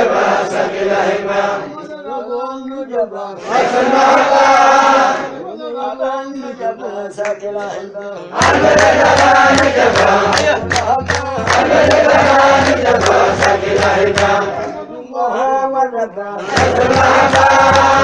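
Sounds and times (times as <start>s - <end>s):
men chanting in unison: 0.0s - 1.9s, 2.9s - 18.0s
sharp percussion hits: 8.4s - 14.4s.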